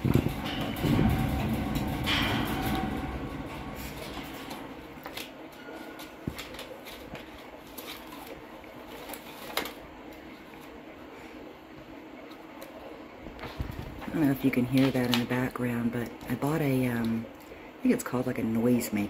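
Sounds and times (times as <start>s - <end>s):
sharp paper crackle: 5.1s - 10.7s
magazine pages rustling: 6.0s - 10.8s.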